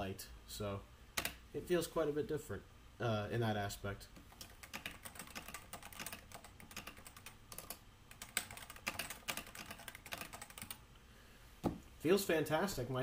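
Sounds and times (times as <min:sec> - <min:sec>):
keyboard typing: 0:04.2 - 0:10.8.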